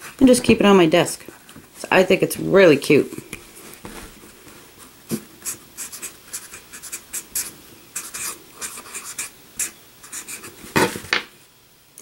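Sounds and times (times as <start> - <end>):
marker writing on paper: 5.4 - 10.5.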